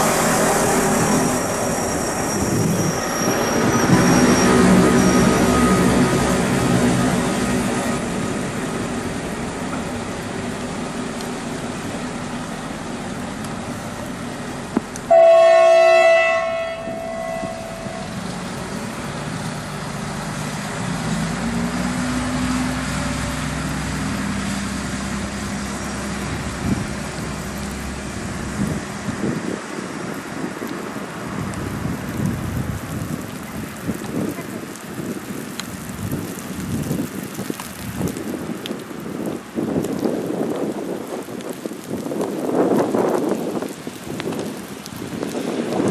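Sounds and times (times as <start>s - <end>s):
diesel railcar engine running: 0.0s - 36.1s
train horn blast: 15.1s - 18.2s.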